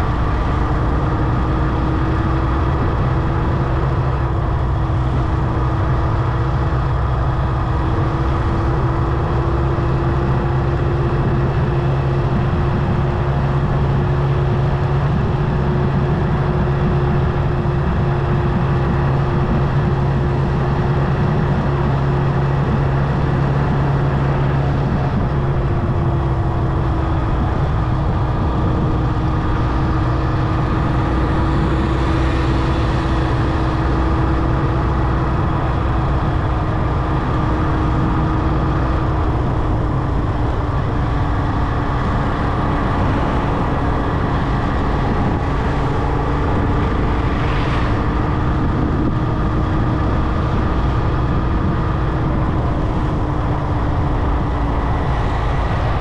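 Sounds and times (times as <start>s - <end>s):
motorcycle engine cruising: 0.0s - 56.0s
wind and road noise: 0.0s - 56.0s.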